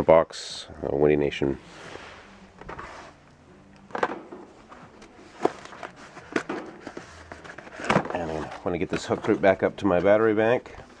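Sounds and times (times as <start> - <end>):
cardboard rustling: 3.9 - 11.0.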